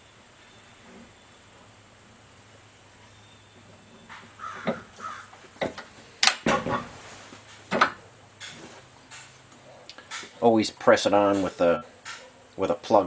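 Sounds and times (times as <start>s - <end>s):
sharp metallic clunks: 4.1s - 4.9s.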